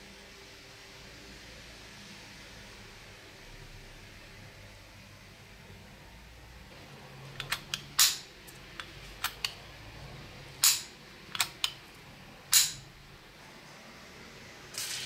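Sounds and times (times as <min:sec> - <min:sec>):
bicycle bell lever clicks: 0:12.5 - 0:12.8.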